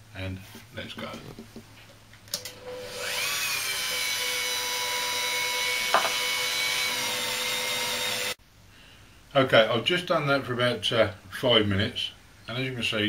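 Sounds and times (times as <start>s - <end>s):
rotary polishing tool whine: 2.4s - 8.4s.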